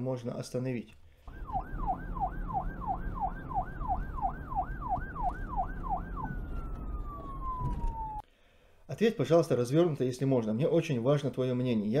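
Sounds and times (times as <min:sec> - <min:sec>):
emergency siren yelping: 0:01.3 - 0:08.2.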